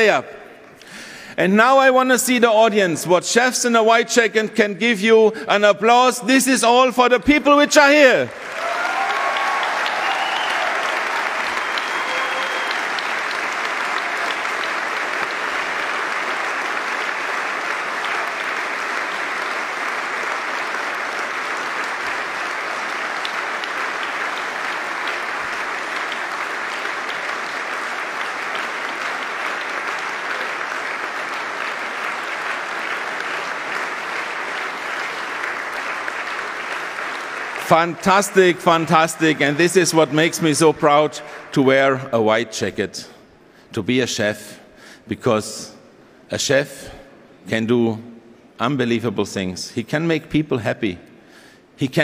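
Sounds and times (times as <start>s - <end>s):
large crowd applauding: 7.9s - 41.6s.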